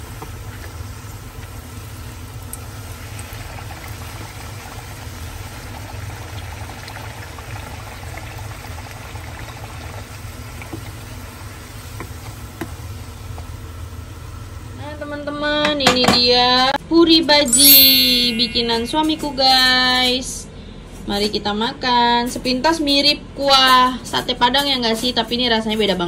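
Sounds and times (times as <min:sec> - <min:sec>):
hot oil sizzling and bubbling: 0:00.0 - 0:14.7
low steady hum: 0:17.4 - 0:20.8.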